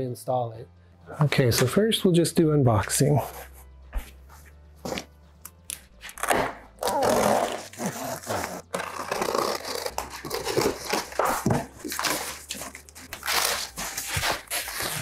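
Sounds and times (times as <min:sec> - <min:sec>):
cardboard and foam rustling: 0:07.0 - 0:15.0.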